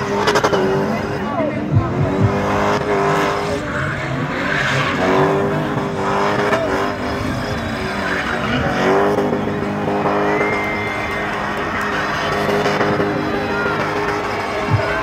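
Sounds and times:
car engine at high revs: 0.0 - 15.0
tyres squealing: 3.6 - 15.0.

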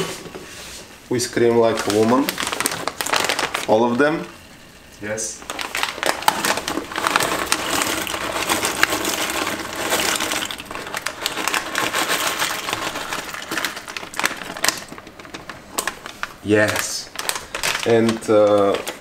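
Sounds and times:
plastic bag crinkling: 1.5 - 4.4, 5.3 - 19.0
dry pasta pattering into pot: 5.4 - 19.0.

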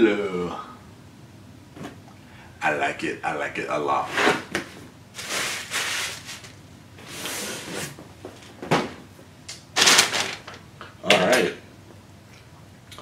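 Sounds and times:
packing material rustling: 5.2 - 6.6.

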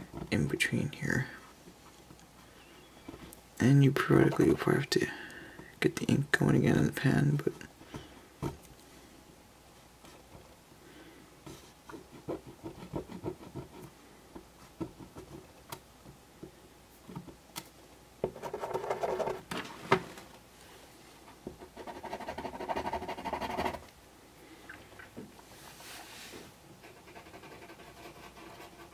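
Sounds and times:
marker scratching: 21.8 - 23.8, 26.8 - 28.9.

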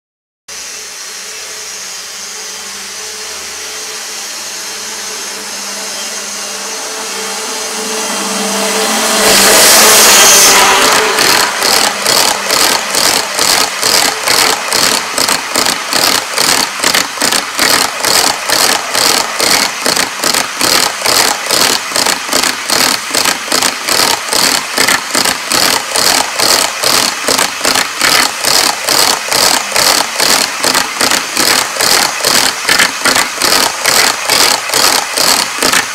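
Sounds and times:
model train humming: 0.5 - 35.9
train wheel clicks: 10.1 - 35.9.

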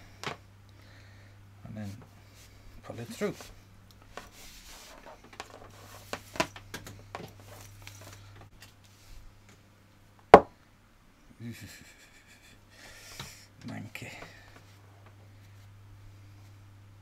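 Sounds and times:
cable rubbing through cloth: 3.1 - 6.5.

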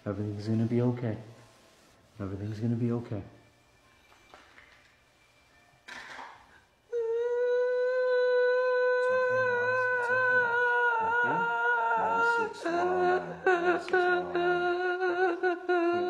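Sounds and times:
woman moaning cry: 6.9 - 16.0
woman sobbing: 6.9 - 16.0.

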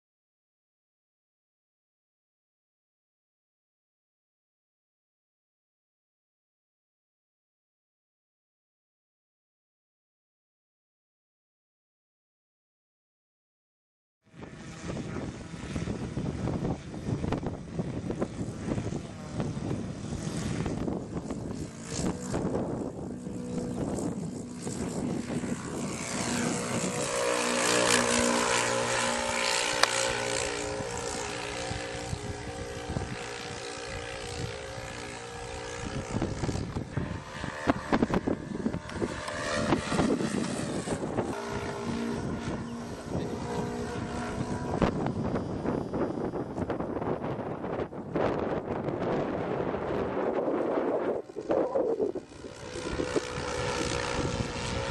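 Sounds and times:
model airplane engines: 14.2 - 54.9
wind buffeting microphone: 14.3 - 54.9.

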